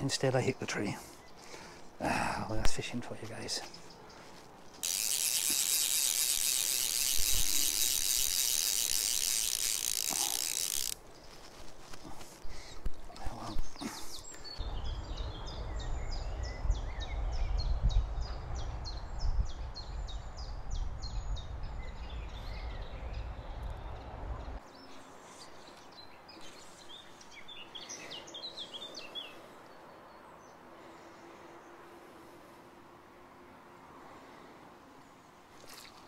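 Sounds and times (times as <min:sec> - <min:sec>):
wind buffeting microphone: 0:14.6 - 0:24.2.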